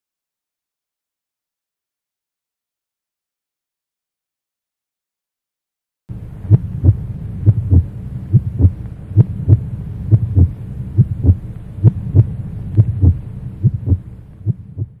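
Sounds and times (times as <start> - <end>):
heartbeat thumps: 6.5 - 15.0.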